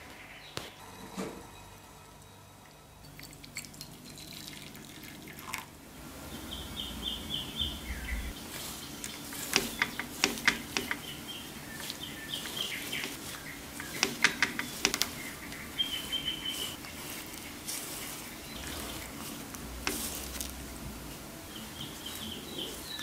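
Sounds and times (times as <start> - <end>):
small birds chirping: 0.0 - 0.8, 2.0 - 23.0
pastry brush brushing cake: 8.3 - 23.0
brush clicks and taps: 8.6 - 20.7.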